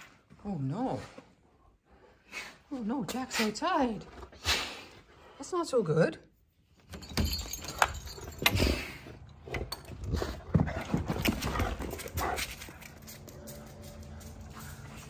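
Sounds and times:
dog feet on pavers: 10.1 - 15.0.

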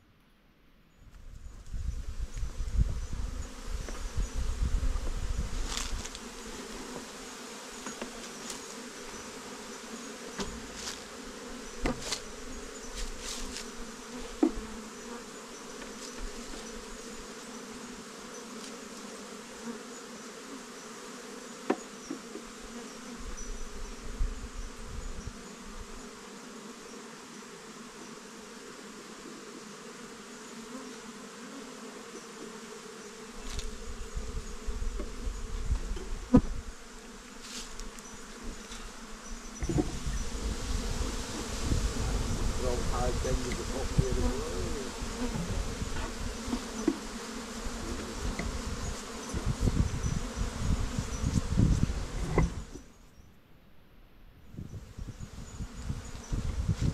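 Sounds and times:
insects buzzing: 1.0 - 53.4, 54.6 - 56.9.

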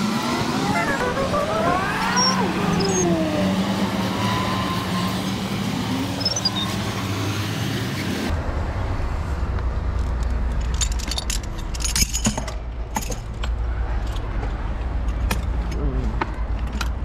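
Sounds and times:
traffic noise: 0.0 - 17.0
sharp clicks and clinks: 10.0 - 14.2.

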